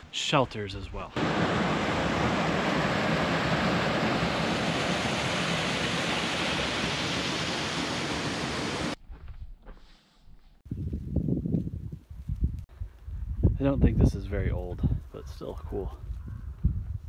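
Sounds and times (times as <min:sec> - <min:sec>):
waterfall rushing: 0:01.2 - 0:09.0.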